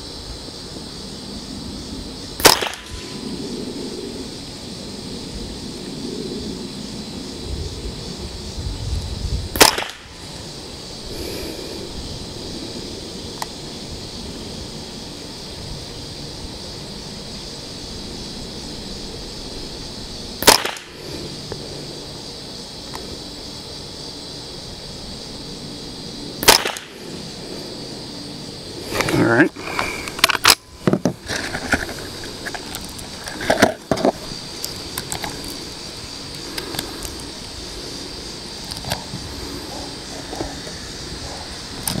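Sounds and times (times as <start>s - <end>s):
rifle shots: 2.4s - 3.1s, 9.6s - 10.1s, 20.4s - 21.0s, 26.4s - 27.0s.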